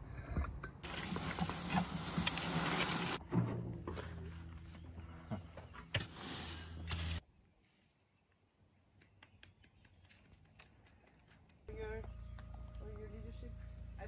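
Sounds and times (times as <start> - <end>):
gravel rushing from wheelbarrow: 0.8 - 3.2
rake scraping through gravel: 0.8 - 3.2, 6.0 - 7.2.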